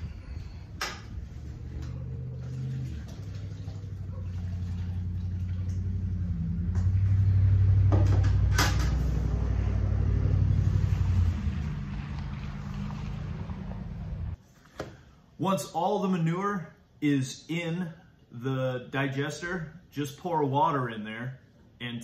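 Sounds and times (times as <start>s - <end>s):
low rumble: 0.0s - 14.4s.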